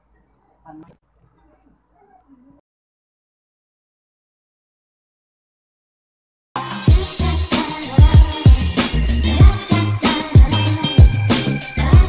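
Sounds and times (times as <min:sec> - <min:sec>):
dance music: 0:06.6 - 0:12.0.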